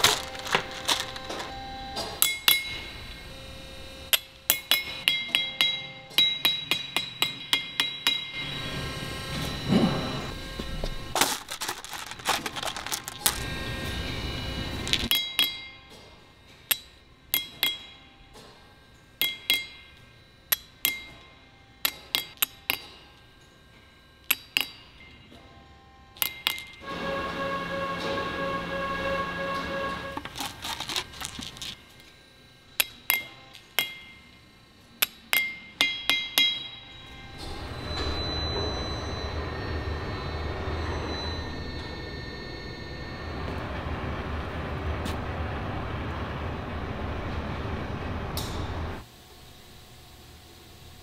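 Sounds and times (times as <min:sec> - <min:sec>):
metal balls clinking: 0:00.0 - 0:01.5, 0:11.2 - 0:13.5, 0:26.2 - 0:26.8, 0:30.2 - 0:32.1
hammer tapping metal: 0:04.1 - 0:08.4, 0:15.1 - 0:15.9, 0:16.7 - 0:18.1, 0:19.2 - 0:23.2, 0:24.3 - 0:25.2, 0:32.8 - 0:34.3, 0:35.0 - 0:36.9.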